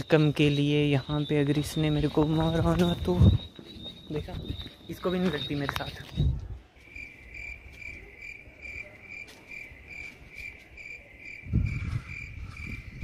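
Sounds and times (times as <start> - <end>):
insect chirping: 0.0 - 13.0
low microphone rumble: 11.4 - 13.0.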